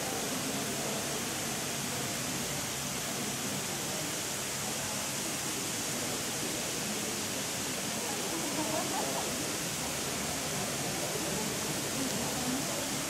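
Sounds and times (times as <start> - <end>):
droplets falling on wet paving: 6.3 - 13.0.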